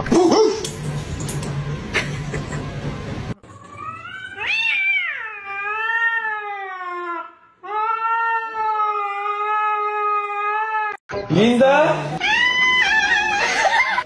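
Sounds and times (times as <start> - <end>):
cat yowling: 3.6 - 11.0, 12.2 - 13.8.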